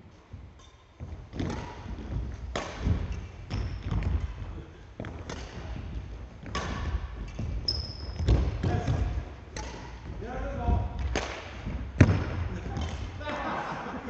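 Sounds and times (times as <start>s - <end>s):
rackets striking shuttlecock: 0.6s - 4.4s, 6.4s - 10.1s, 11.0s - 13.1s.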